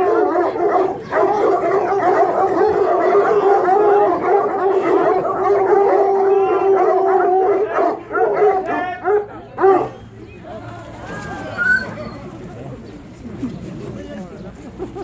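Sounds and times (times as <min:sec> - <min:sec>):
hounds howling and baying: 0:00.0 - 0:10.0.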